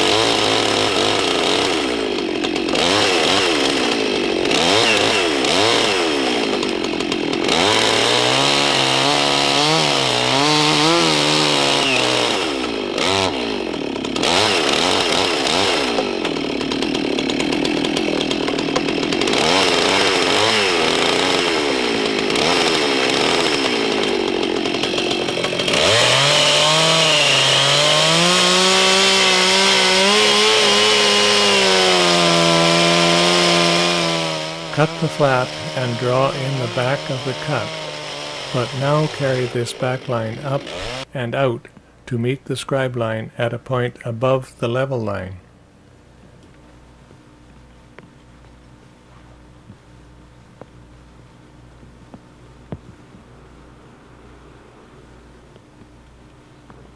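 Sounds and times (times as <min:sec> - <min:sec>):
chainsaw cutting into log: 0:00.0 - 0:41.5.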